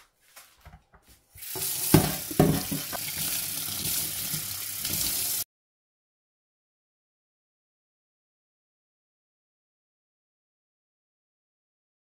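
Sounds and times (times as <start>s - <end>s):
tap water running into steel sink: 1.4s - 5.4s
knocks: 1.9s - 3.0s.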